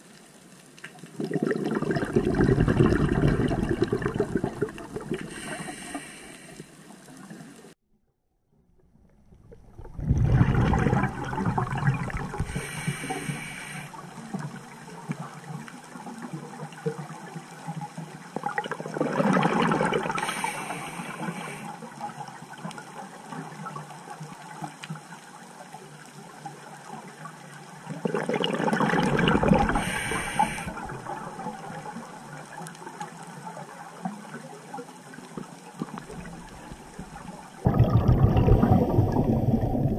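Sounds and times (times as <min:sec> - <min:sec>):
exhaled bubbles gurgling underwater: 0:01.1 - 0:07.5, 0:09.1 - 0:24.7, 0:26.2 - 0:39.9
regulator inhale hiss: 0:05.2 - 0:07.7, 0:12.4 - 0:14.0, 0:20.2 - 0:21.8, 0:29.7 - 0:30.9.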